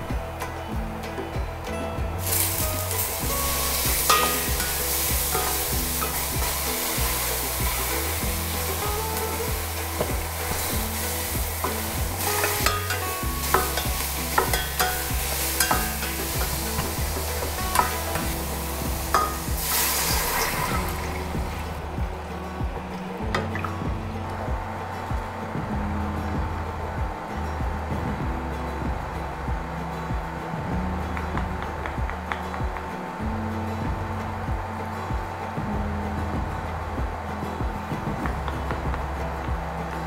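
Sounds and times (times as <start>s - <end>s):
food sizzling in oil: 2.2s - 21.7s
water pouring: 2.2s - 22.0s.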